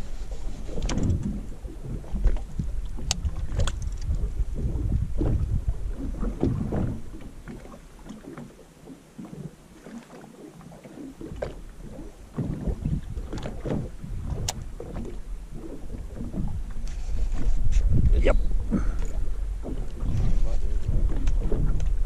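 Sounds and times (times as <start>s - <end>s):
small waves slapping boat hull: 0.0s - 22.0s.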